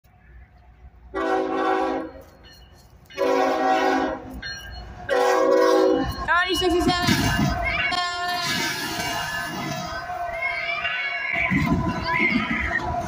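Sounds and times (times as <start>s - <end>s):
locomotive air horn blasts: 1.1s - 2.2s, 3.2s - 4.3s, 5.1s - 6.1s.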